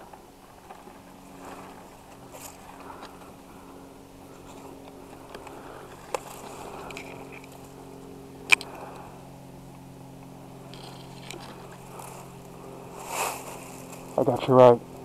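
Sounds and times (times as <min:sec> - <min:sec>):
dry grass rustling: 0:00.0 - 0:15.0
steady low hum: 0:00.0 - 0:15.0
sharp clicks: 0:08.4 - 0:08.8.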